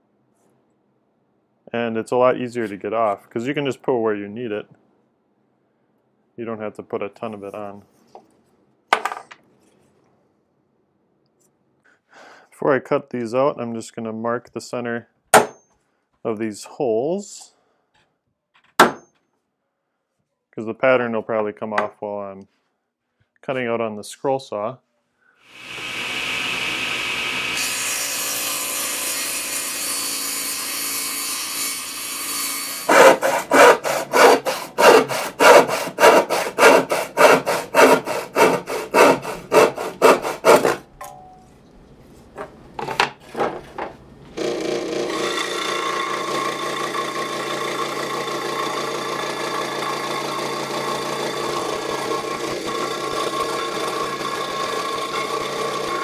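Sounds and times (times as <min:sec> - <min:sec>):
scroll saw cutting wood: 0:25.5 - 0:40.8, 0:44.4 - 0:56.0
sawing strokes on wood: 0:27.5 - 0:40.8.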